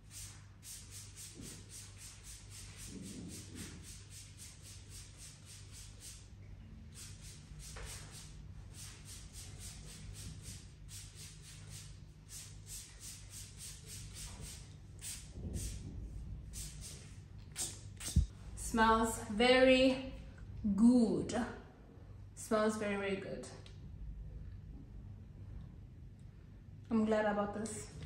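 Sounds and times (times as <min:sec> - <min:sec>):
spray bottle hissing spritzes: 0:00.0 - 0:06.2, 0:06.9 - 0:15.8, 0:16.6 - 0:18.3.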